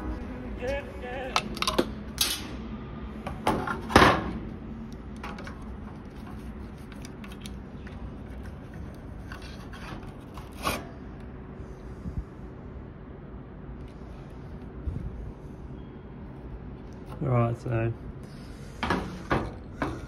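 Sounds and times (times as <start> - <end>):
circuit board handling scrapes: 5.6 - 10.9.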